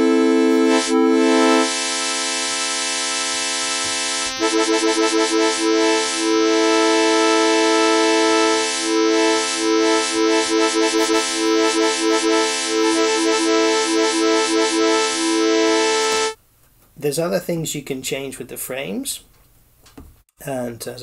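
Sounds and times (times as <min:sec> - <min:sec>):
synthesizer chord stuttering: 0:00.0 - 0:16.4.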